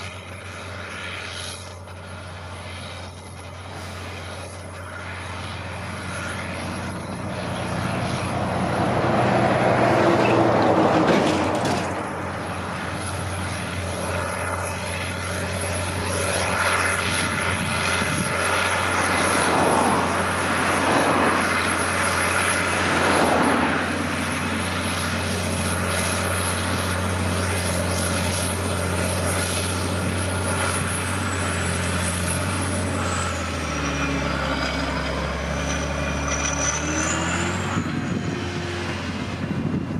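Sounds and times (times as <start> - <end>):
tractor diesel engine droning: 0.0 - 39.9
rushing noise: 3.5 - 39.9.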